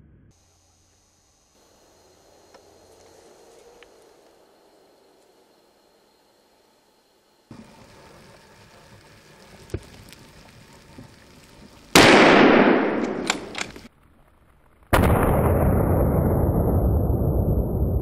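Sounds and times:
gunshot echo rolling: 0:11.9 - 0:13.8, 0:14.9 - 0:18.0
rifle shots: 0:12.0 - 0:13.8.

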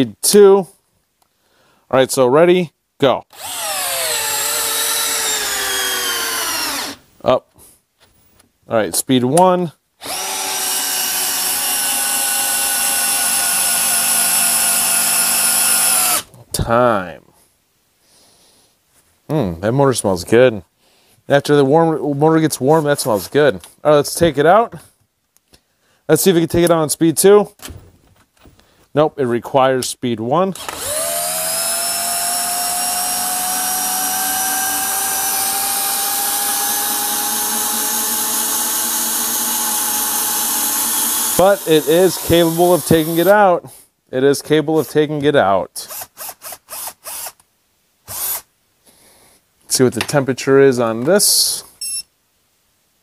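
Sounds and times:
cordless drill motor whine: 0:03.3 - 0:07.0, 0:10.0 - 0:16.3, 0:30.6 - 0:43.3.

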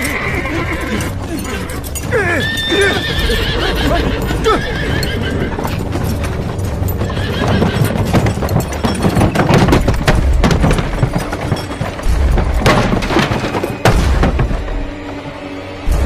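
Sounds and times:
horse whinnying: 0:00.0 - 0:05.9, 0:06.9 - 0:08.3
background music: 0:00.0 - 0:16.0
hooves clip-clopping on stone: 0:00.0 - 0:16.0.

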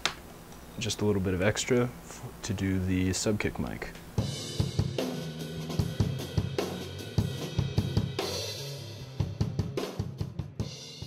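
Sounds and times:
drum kit beat: 0:04.2 - 0:11.0.

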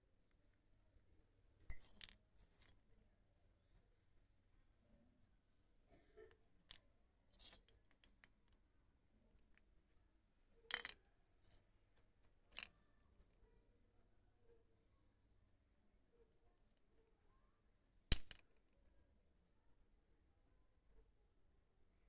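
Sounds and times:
clay pot pieces clinking on floor: 0:01.6 - 0:02.7, 0:10.7 - 0:11.0, 0:12.4 - 0:12.9, 0:18.1 - 0:18.6.

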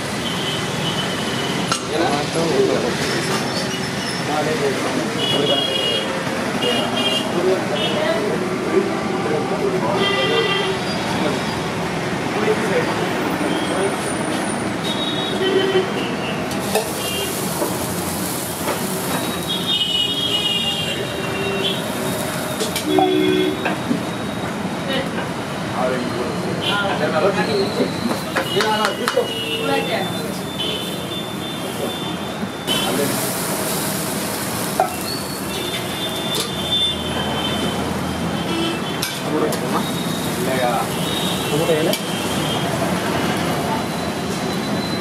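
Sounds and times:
food sizzling on a griddle: 0:00.0 - 0:08.6, 0:16.4 - 0:24.2, 0:27.0 - 0:44.8
road traffic noise: 0:00.0 - 0:45.0.

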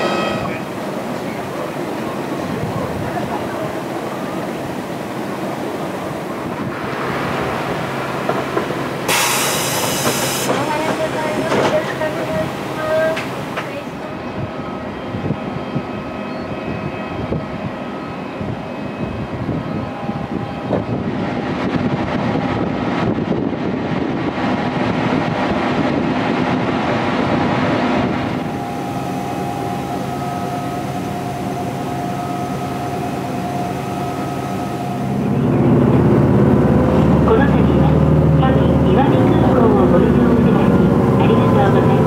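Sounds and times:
bus engine humming: 0:00.0 - 0:14.5, 0:21.6 - 0:42.0
bus cabin noise: 0:08.2 - 0:13.9, 0:35.0 - 0:42.0.

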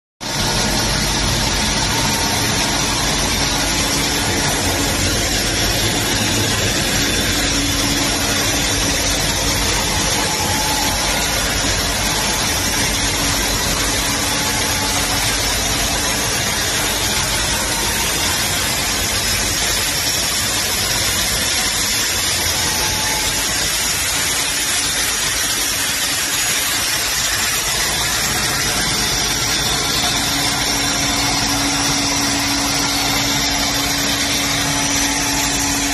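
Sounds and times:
loud machine noise: 0:00.2 - 0:35.9.

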